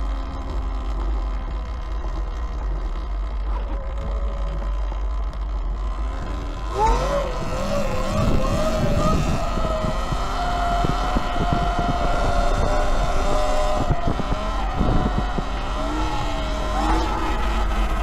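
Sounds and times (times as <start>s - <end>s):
electric motor whining: 0.0s - 18.0s
wind on microphone: 6.2s - 18.0s.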